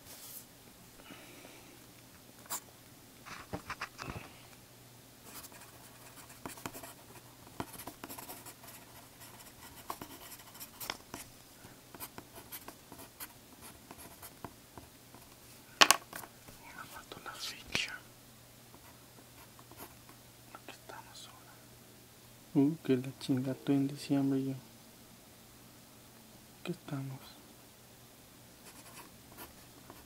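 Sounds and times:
pencil scratching on paper: 0:05.3 - 0:11.2, 0:12.0 - 0:14.4.

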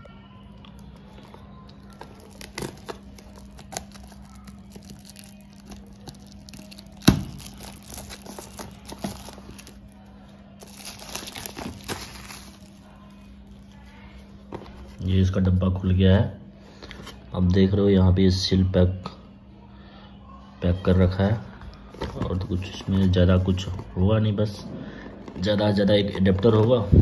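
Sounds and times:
plastic shrink-wrap crinkling: 0:00.6 - 0:15.0.

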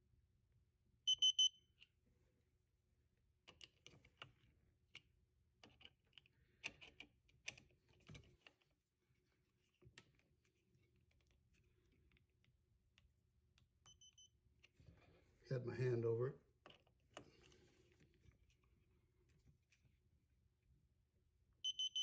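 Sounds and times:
screwdriver beeping: 0:01.1 - 0:01.6, 0:13.8 - 0:14.4, 0:21.6 - 0:22.0.

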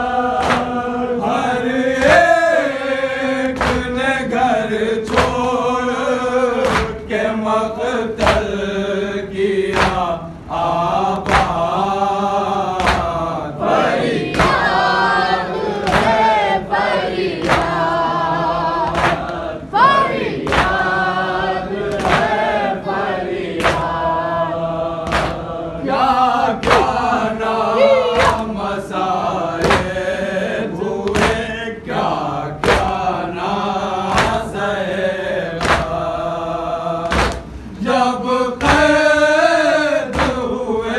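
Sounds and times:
men chanting in unison: 0:00.0 - 0:40.9
hands slapping chests: 0:00.4 - 0:00.8, 0:03.4 - 0:04.0, 0:05.0 - 0:05.5, 0:06.6 - 0:07.1, 0:08.2 - 0:08.5, 0:09.7 - 0:10.1, 0:11.2 - 0:11.6, 0:12.8 - 0:13.2, 0:14.2 - 0:14.8, 0:15.7 - 0:16.4, 0:17.3 - 0:18.1, 0:18.8 - 0:21.0, 0:21.8 - 0:22.6, 0:23.5 - 0:24.0, 0:25.0 - 0:25.5, 0:26.6 - 0:27.2, 0:27.8 - 0:28.6, 0:29.6 - 0:30.0, 0:31.0 - 0:31.5, 0:32.6 - 0:33.1, 0:34.1 - 0:34.6, 0:35.6 - 0:36.0, 0:37.0 - 0:37.6, 0:38.6 - 0:39.1, 0:40.0 - 0:40.6.

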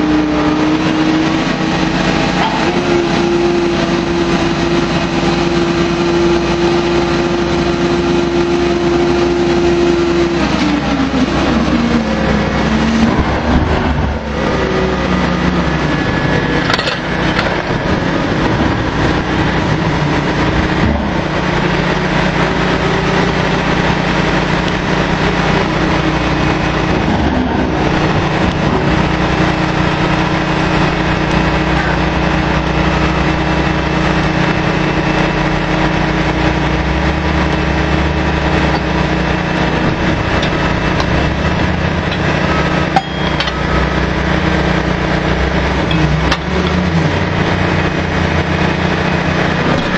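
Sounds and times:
drilling rig machinery drone: 0:00.0 - 0:49.9
sharp metallic clank: 0:42.9 - 0:43.6.

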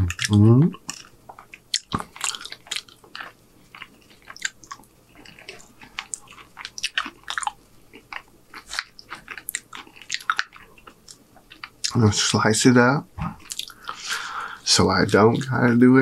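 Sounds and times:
wet chewing mouth sounds: 0:00.0 - 0:12.1, 0:13.2 - 0:14.2.

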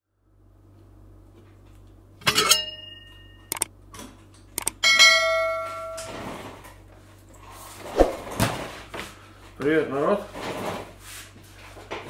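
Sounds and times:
mouse clicks: 0:04.6 - 0:04.8.

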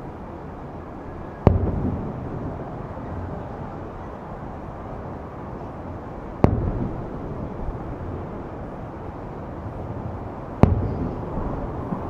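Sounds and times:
background noise: 0:00.0 - 0:12.0
distant firework booms: 0:01.4 - 0:02.7, 0:06.4 - 0:08.0, 0:10.6 - 0:12.0.

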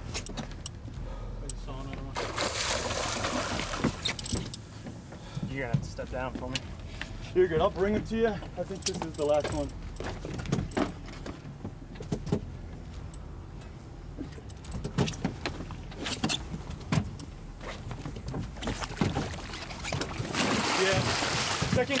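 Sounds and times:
boat engine rumble: 0:00.0 - 0:22.0
fishing tackle knocking and clicking: 0:08.7 - 0:11.0.

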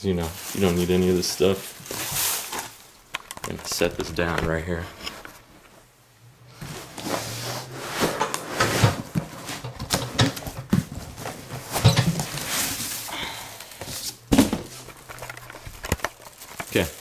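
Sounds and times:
cardboard scraping and rustling: 0:00.4 - 0:05.8, 0:06.6 - 0:13.1
box knocks and thumps: 0:14.3 - 0:14.8.

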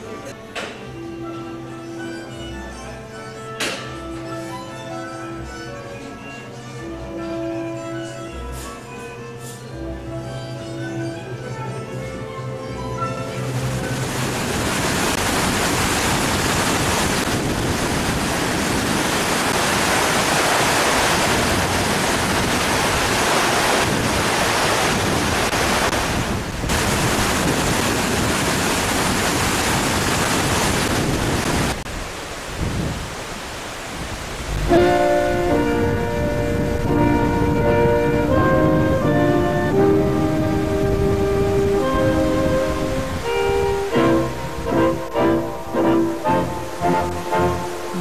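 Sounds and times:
stream rushing over rocks: 0:13.2 - 0:37.6, 0:39.8 - 0:48.0.

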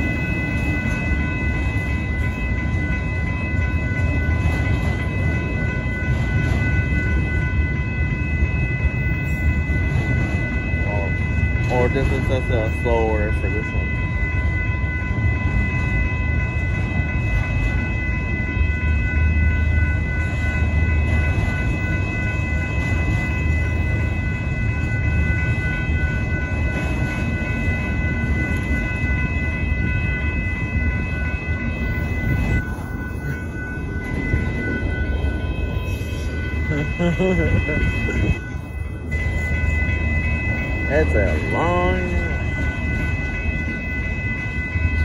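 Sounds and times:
crossing warning bell: 0:00.0 - 0:45.0
freight cars rolling rumble: 0:00.0 - 0:45.0.

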